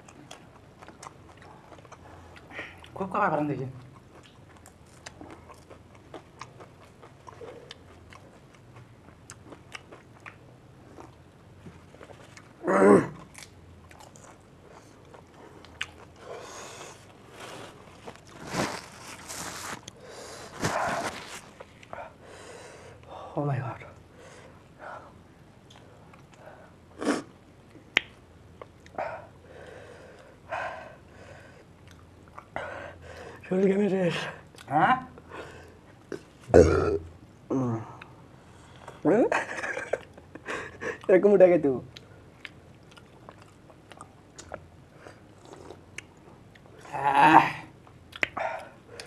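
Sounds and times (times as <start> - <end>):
wet chewing: 3.8 - 11.2, 41.9 - 46.7
heavy breaths and sniffs: 16.2 - 23.0.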